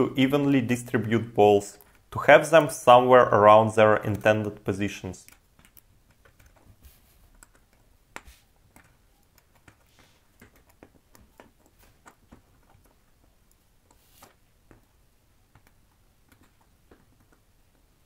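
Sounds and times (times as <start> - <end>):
metal balls ticking: 0.0 - 18.0
tweezers clicking on metal balls: 3.9 - 6.7, 7.3 - 14.0.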